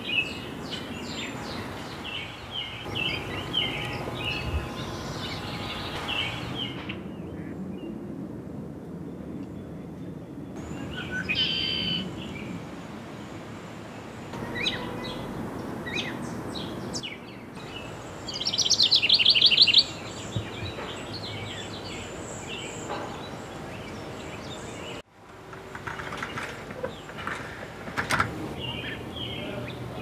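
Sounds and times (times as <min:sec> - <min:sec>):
bird trill: 0:00.0 - 0:07.4, 0:10.6 - 0:12.4, 0:14.4 - 0:25.0
songbirds chirping: 0:00.0 - 0:08.2, 0:09.0 - 0:30.0.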